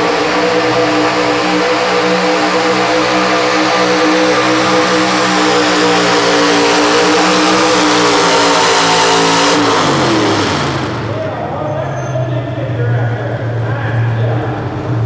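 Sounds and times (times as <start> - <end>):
truck engine revving under load: 0.0 - 11.7.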